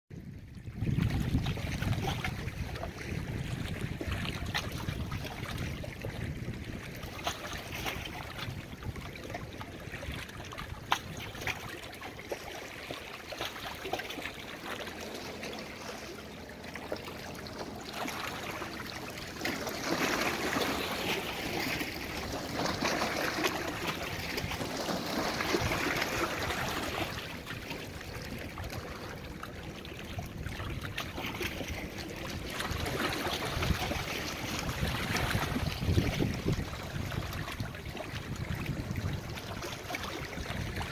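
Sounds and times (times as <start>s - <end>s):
wind buffeting microphone: 0.1s - 11.8s, 32.3s - 40.9s
small waves lapping on shore: 0.2s - 40.9s.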